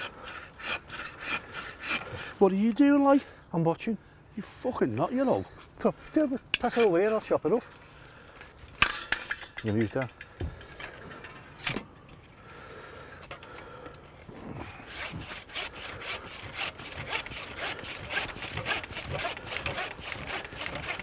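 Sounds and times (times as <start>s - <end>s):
hand saw cutting wood: 0.0s - 2.5s, 6.6s - 7.6s, 14.6s - 21.0s.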